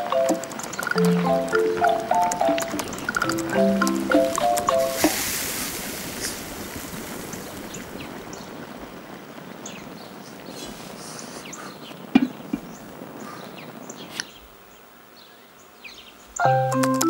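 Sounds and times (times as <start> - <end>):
small ticks: 0.0 - 5.2
bubbling foam hissing: 0.4 - 13.4.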